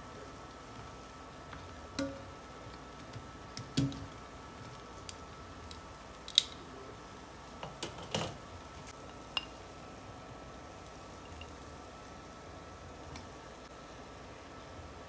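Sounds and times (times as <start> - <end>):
tongs tapping on skillet and plate: 1.9 - 4.1, 9.0 - 9.6, 11.2 - 11.6.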